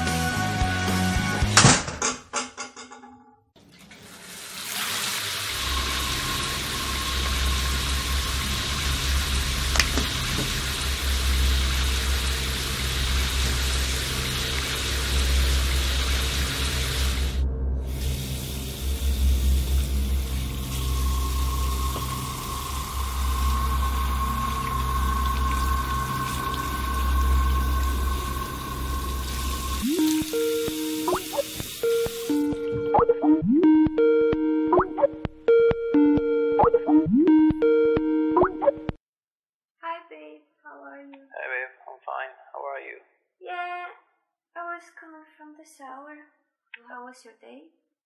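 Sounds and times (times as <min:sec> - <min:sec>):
shower running: 0:03.6 - 0:32.6
sink tap running: 0:03.8 - 0:17.4, 0:19.3 - 0:32.6
low throbbing music drone: 0:10.6 - 0:31.1.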